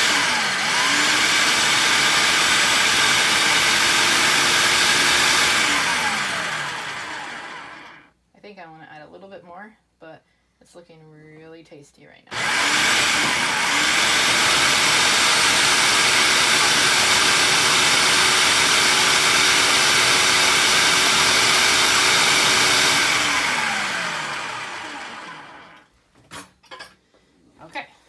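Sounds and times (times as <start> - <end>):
food processor running: 0.0 - 8.1, 12.3 - 25.9.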